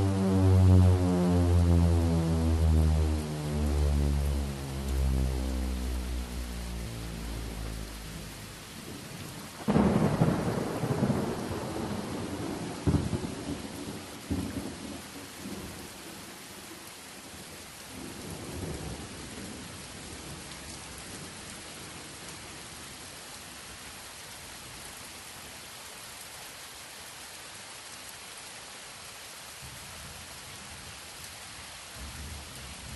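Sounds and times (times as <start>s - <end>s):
steady rain: 0.0s - 32.9s
thunderclap and rumbling: 6.2s - 14.8s.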